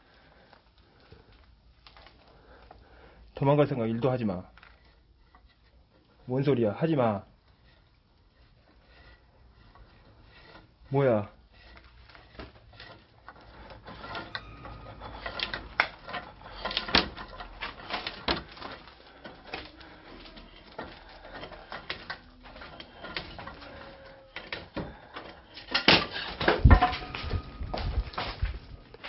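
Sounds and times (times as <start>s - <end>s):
heavy thud: 26.7s - 28.8s.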